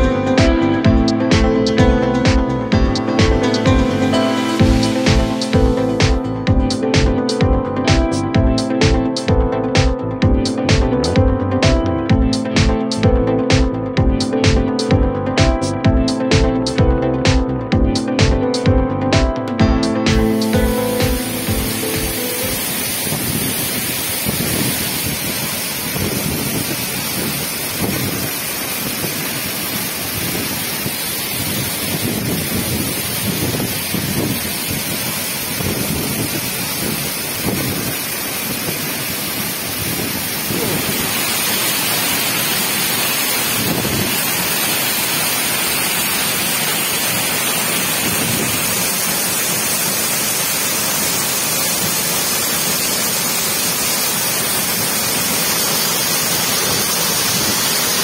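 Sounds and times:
waterfall rushing water: 2.7s - 7.4s, 19.8s - 58.0s
wind buffeting microphone: 23.1s - 29.2s, 30.1s - 41.2s, 43.5s - 44.2s, 48.0s - 48.8s.

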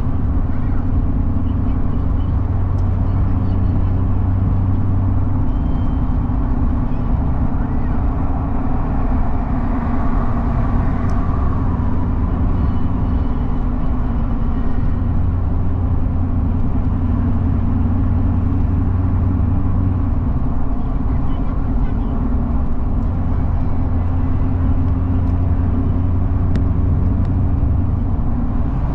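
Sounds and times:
low hum: 0.0s - 28.9s
road and engine noise: 0.0s - 28.9s.

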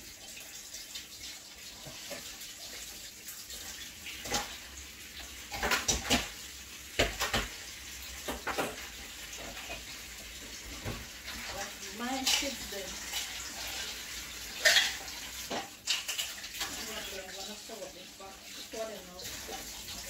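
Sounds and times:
tap water running into sink: 0.0s - 20.0s
dishes and pots clattering: 4.2s - 4.6s, 5.2s - 7.6s, 8.2s - 17.6s.

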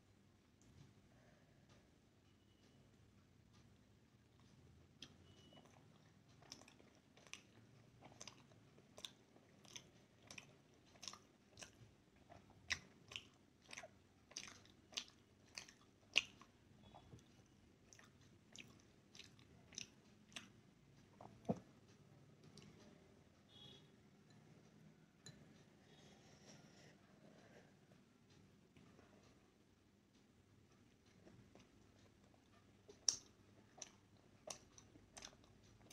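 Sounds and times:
person chewing: 4.4s - 21.7s, 31.1s - 35.9s
wet mouth clicks and smacks: 32.9s - 35.4s.

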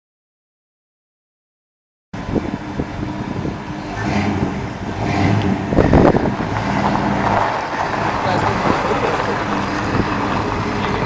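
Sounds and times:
car engine idling: 2.2s - 11.0s.

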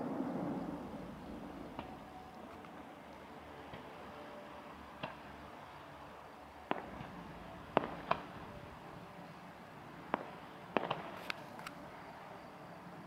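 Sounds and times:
distant fireworks bangs: 0.0s - 2.2s, 6.7s - 8.9s, 10.1s - 11.5s.

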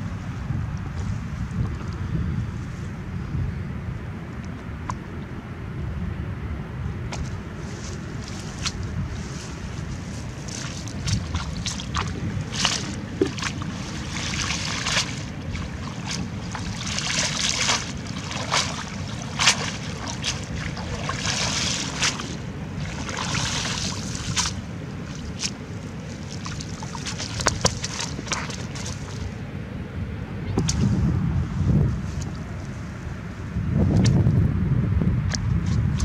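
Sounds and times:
steady low rumble: 0.0s - 36.0s
dry grass rustling: 7.2s - 29.3s
fish slapping on ground: 10.2s - 29.3s.

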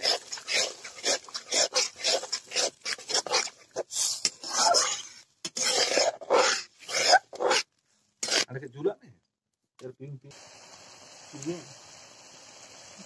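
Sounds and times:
metal spatula scraping a wok: 0.0s - 7.6s, 8.2s - 8.5s.

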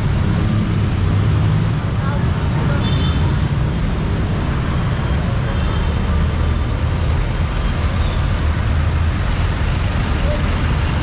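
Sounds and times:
road noise: 0.0s - 11.0s
vehicle engines rumbling: 0.0s - 11.0s.

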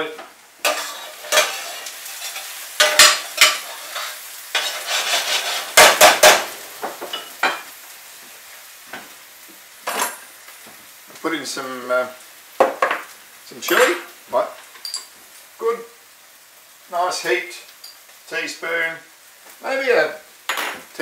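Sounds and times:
food sizzling in a frying pan: 0.0s - 21.0s
spoon scraping and clanking on pan: 0.6s - 7.7s.

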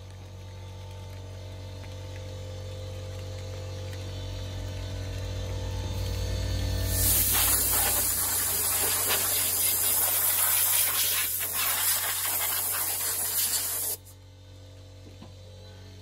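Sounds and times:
compressed air blow gun hissing: 6.9s - 14.1s.

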